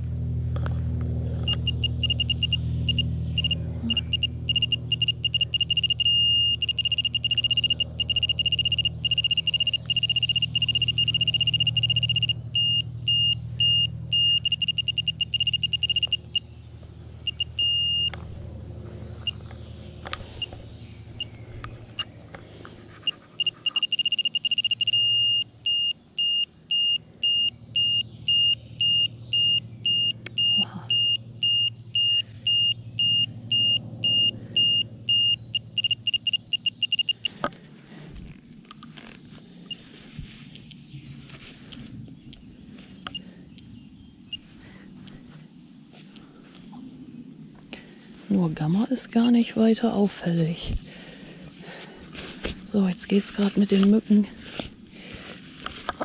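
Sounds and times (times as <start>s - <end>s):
low steady hum: 0.0s - 56.0s
radiation meter beeping: 1.4s - 16.5s, 17.2s - 18.2s, 19.2s - 19.4s, 20.3s - 20.6s, 21.2s - 21.4s, 23.0s - 37.4s, 44.3s - 44.5s.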